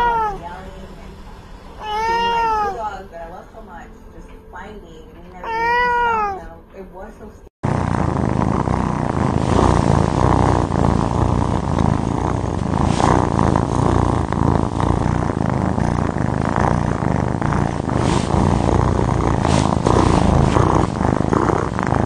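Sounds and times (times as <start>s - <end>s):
kitten purring: 1.8s - 3.0s, 7.6s - 22.0s.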